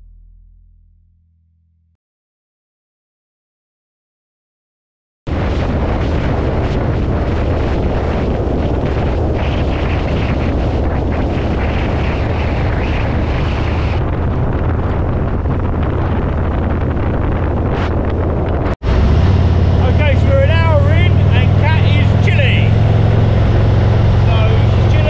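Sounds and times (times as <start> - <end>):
motorcycle engine drone: 5.3 - 25.0
wind rushing over microphone: 5.3 - 25.0.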